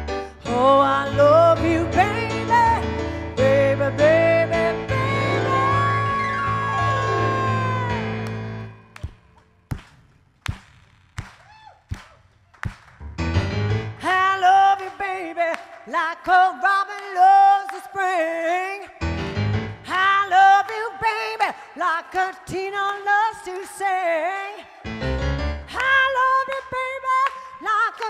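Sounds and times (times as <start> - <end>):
bending wordless lead melody: 0.0 - 8.9
keyboard chord: 0.0 - 8.9
hand claps on a beat: 8.3 - 13.1, 14.8 - 17.9, 22.1 - 24.0, 25.8 - 28.0.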